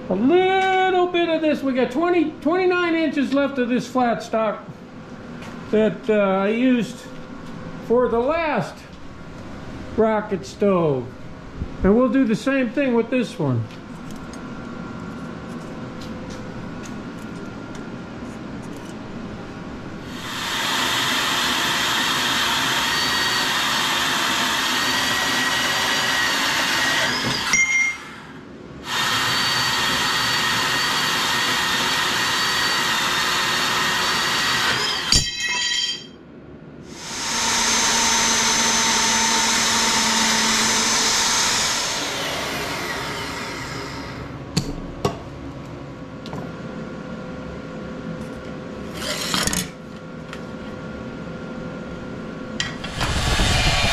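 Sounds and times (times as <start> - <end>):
power tool motor whining: 20.1 - 28.2, 28.8 - 35.1, 36.9 - 44.3, 48.9 - 49.7, 52.8 - 53.9
machine with higher whine: 52.5 - 53.9.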